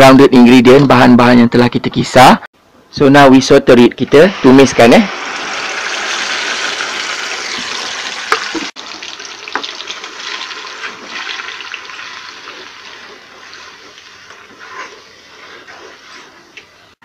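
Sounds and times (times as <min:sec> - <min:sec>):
spice paste sizzling in hot oil: 0:04.3 - 0:17.0.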